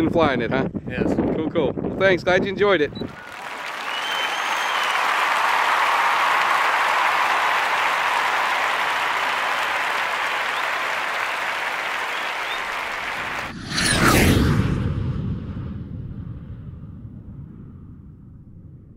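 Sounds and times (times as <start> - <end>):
crowd applauding: 3.0 - 13.5.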